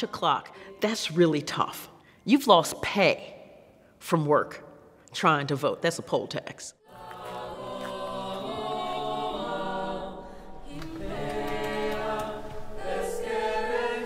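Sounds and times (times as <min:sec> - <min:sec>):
wordless choir singing: 0:06.8 - 0:14.0.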